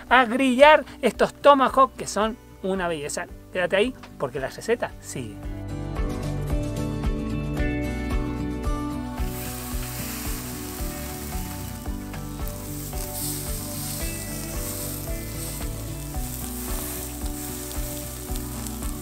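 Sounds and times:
steaks sizzling on a grill: 9.2s - 19.0s.

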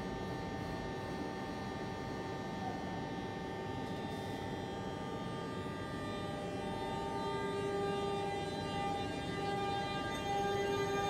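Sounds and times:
train humming and rumbling: 4.6s - 11.0s.

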